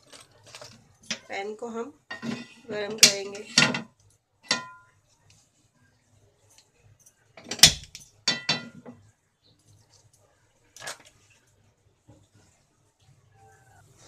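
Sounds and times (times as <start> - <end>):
frying pan clanking on grate: 2.1 - 4.9, 7.4 - 8.9.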